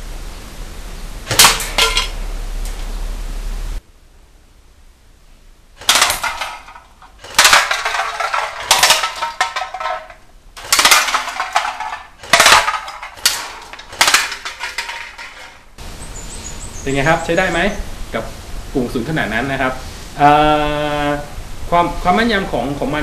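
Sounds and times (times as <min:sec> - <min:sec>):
cans clattering on tiled floor: 0:01.3 - 0:02.2, 0:05.8 - 0:15.7.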